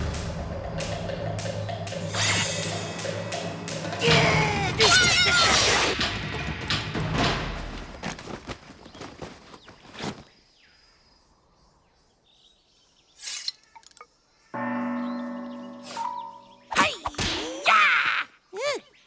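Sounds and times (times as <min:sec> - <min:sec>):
gong-like bell ringing: 0:14.6 - 0:16.7.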